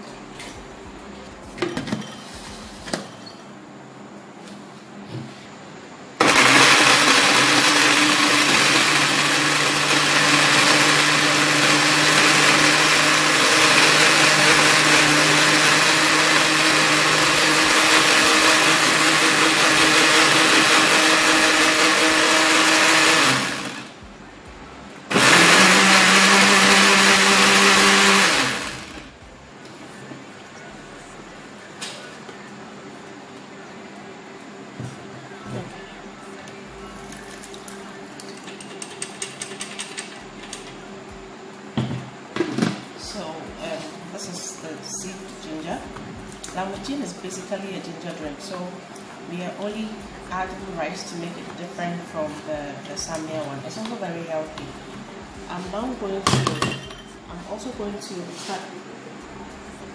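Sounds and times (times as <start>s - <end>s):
electric blender motor running: 6.2s - 24.0s, 25.1s - 29.2s.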